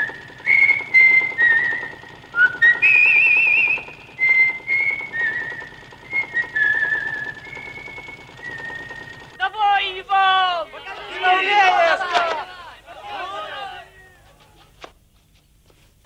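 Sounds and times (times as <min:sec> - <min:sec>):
man whistling a tune: 0:00.4 - 0:09.4.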